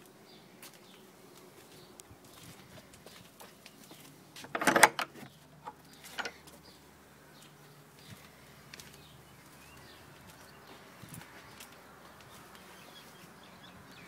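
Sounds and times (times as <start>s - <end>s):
faint outdoor background: 0.0s - 14.0s
metal bolt rattling: 4.4s - 6.4s
gate knocks: 4.5s - 5.2s.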